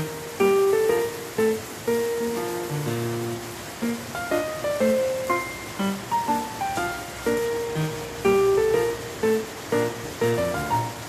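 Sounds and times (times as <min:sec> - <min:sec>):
gentle plucked instrumental music: 0:00.0 - 0:11.0.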